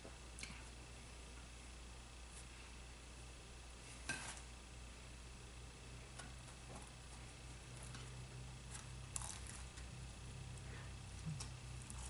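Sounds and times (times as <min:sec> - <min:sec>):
steady low hum: 0:00.0 - 0:12.0
person biting and chewing: 0:09.1 - 0:09.7.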